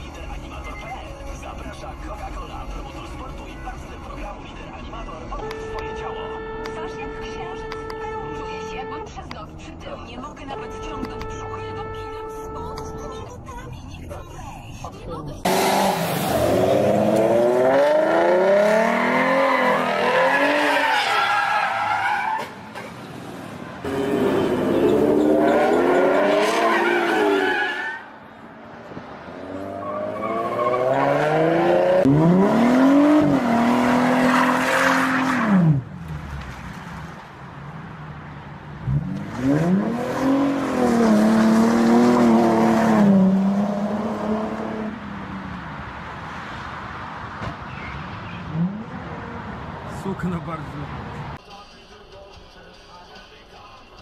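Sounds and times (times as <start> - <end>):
car engines revving hard: 15.4 - 27.8, 28.7 - 51.4.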